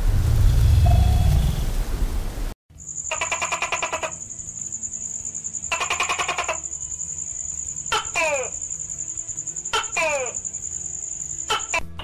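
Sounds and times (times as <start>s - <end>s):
gecko calling: 2.8s - 11.8s.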